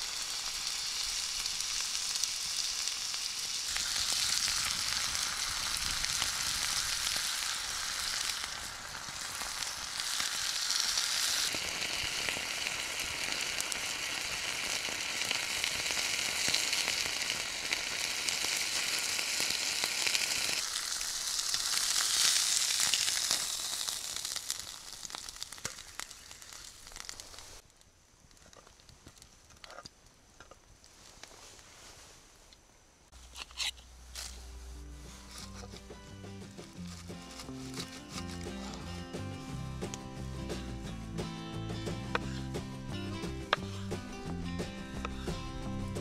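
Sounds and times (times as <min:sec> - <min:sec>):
meat sizzling in a frying pan: 0:00.0 - 0:27.6.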